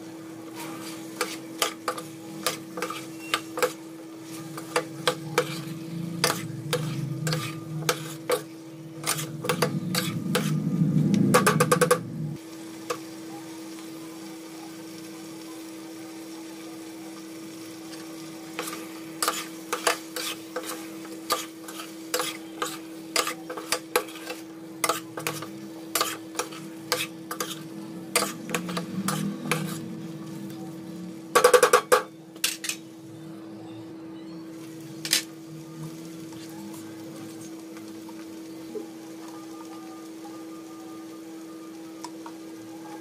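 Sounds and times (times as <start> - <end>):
steady hum: 0.0 - 12.5
spoon scraping metal pan: 4.6 - 10.6, 18.6 - 29.8.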